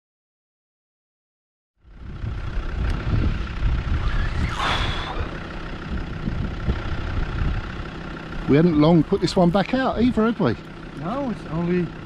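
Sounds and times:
wind buffeting microphone: 0:02.0 - 0:07.9
brief hiss: 0:04.0 - 0:05.4.

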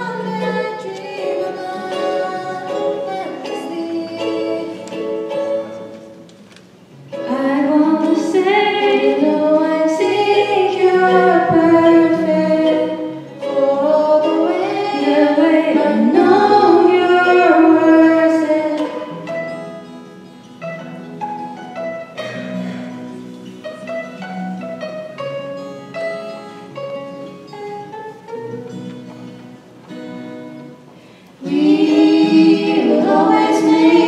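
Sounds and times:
acoustic guitar: 0:00.0 - 0:34.0
women singing pop song: 0:07.3 - 0:19.1, 0:31.4 - 0:34.0.

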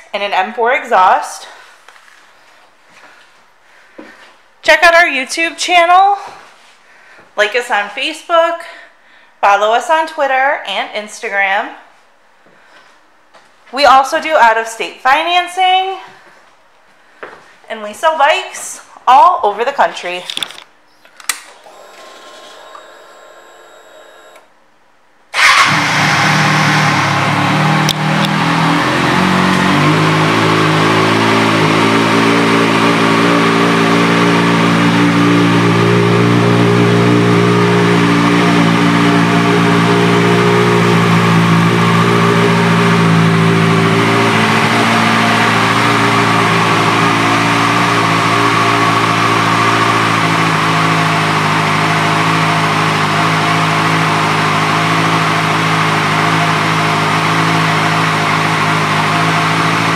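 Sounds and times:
motorcycle engine starting and idling: 0:21.4 - 0:24.5, 0:25.3 - 0:59.9.

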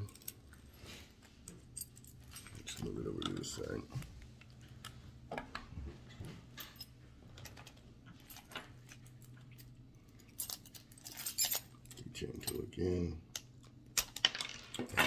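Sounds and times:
keys jangling: 0:00.0 - 0:00.7, 0:06.6 - 0:12.8.

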